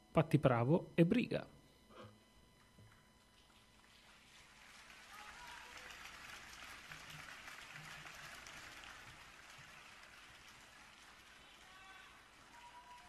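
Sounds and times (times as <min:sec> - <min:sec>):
faint audience applause: 0:03.4 - 0:13.0.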